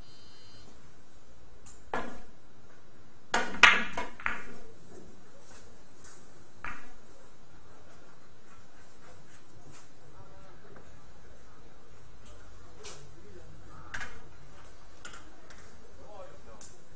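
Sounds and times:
billiard balls clicking: 3.4 - 4.5, 15.0 - 15.7.

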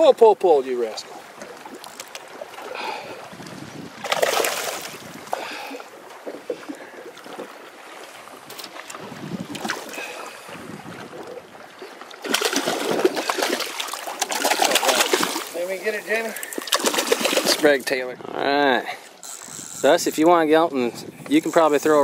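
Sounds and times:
water lapping: 0.0 - 22.0
wind on microphone: 2.8 - 5.6, 8.9 - 11.6, 20.8 - 22.0
fish splashing at surface: 4.0 - 5.8, 12.1 - 15.6, 16.3 - 17.7.

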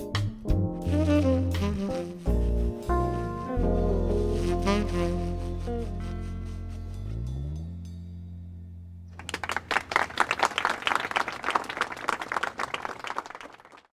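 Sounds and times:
held music chord: 0.0 - 9.1
crowd applause: 9.2 - 13.9.

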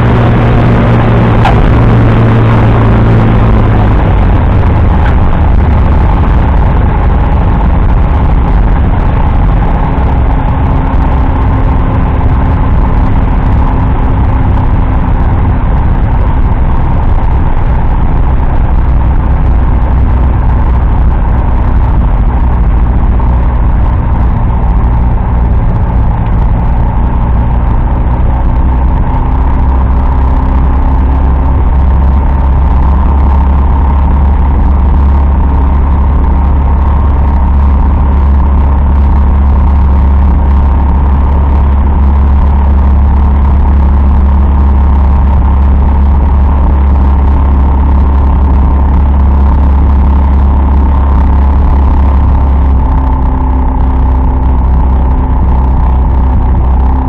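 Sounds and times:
airplane engine and propeller drone: 0.0 - 57.0.

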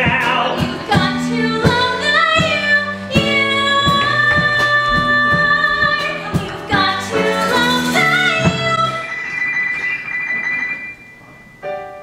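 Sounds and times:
instrumental accompaniment: 0.0 - 12.0
woman singing: 0.6 - 9.1.

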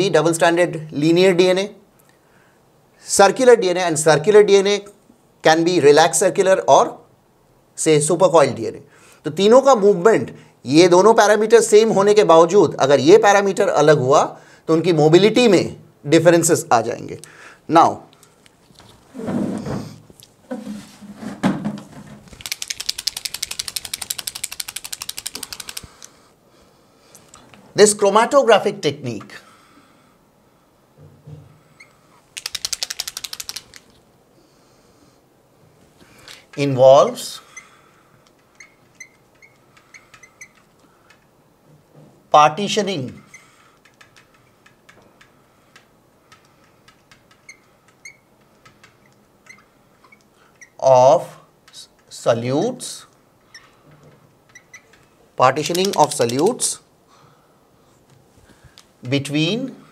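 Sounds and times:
marker mixing ball rattling: 22.1 - 26.1, 32.3 - 34.0, 43.8 - 49.8, 54.5 - 56.8
marker squeaking on glass: 38.5 - 40.7, 47.4 - 50.8, 54.5 - 55.0
marker ticking on glass: 43.8 - 50.8, 55.6 - 56.4.

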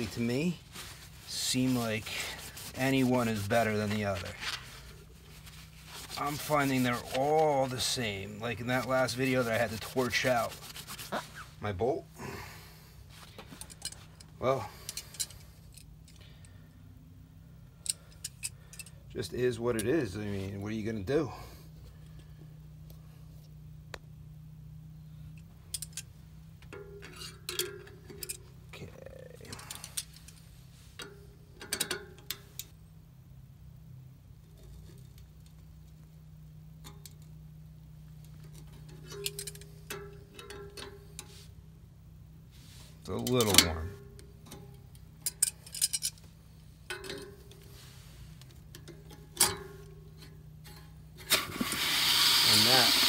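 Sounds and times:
steady low hum: 0.0 - 53.0
metal tools ticking on radiator: 38.2 - 41.3
ringing metal clatter: 38.4 - 41.3.

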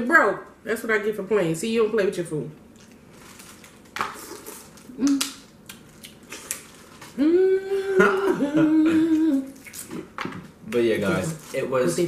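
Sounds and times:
crab shells cracking: 2.8 - 7.2
person humming mmm: 4.3 - 5.3, 7.2 - 10.0.

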